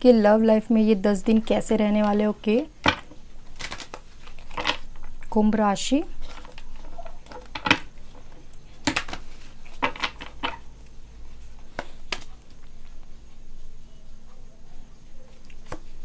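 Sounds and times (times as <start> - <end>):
cards being shuffled: 2.9 - 4.8, 8.8 - 10.7, 11.7 - 12.6.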